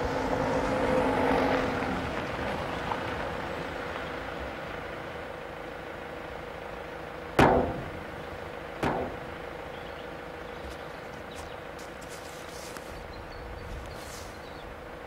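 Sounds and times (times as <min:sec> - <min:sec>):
vehicle engine hum: 0:00.0 - 0:15.0
sharp slams: 0:07.4 - 0:09.6.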